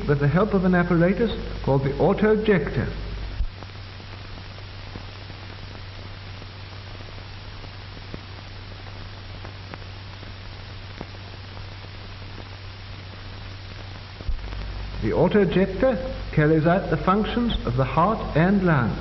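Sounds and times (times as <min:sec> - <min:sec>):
film soundtrack hiss: 0:00.0 - 0:19.0.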